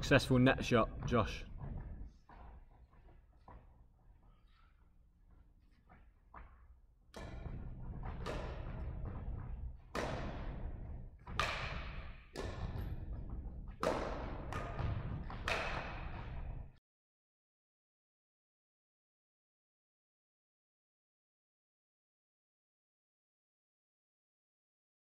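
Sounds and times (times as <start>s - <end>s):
rackets hitting shuttlecock: 7.2s - 16.7s.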